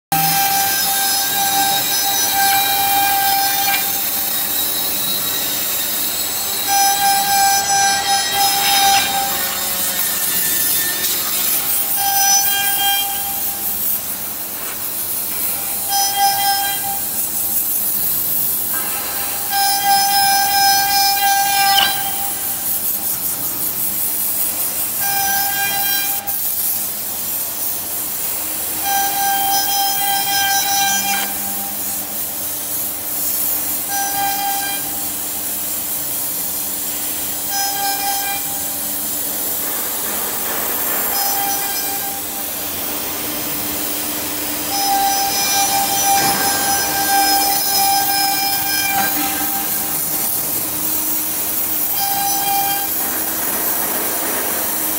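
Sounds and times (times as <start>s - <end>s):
router spindle hiss cutting wood: 0.1s - 54.9s.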